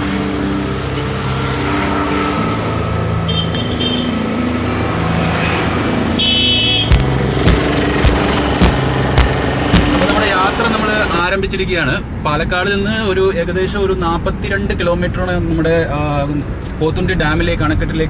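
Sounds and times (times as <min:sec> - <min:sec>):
background music: 0:00.0 - 0:11.3
sharp rhythmic clicks: 0:06.9 - 0:10.3
car engine running: 0:06.9 - 0:11.2.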